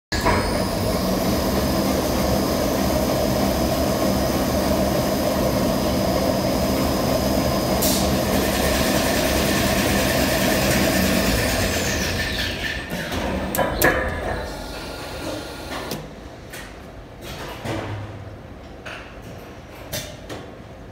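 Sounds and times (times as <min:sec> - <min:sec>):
machine running with high whine: 0:00.1 - 0:16.0.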